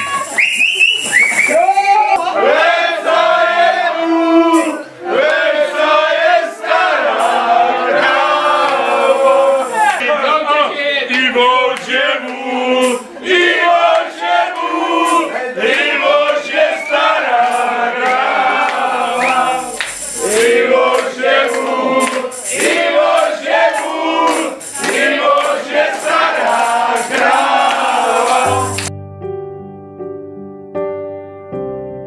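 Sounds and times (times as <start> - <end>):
group of men singing: 2.2 - 28.9
regular sharp beat: 4.6 - 10.0, 11.8 - 28.9.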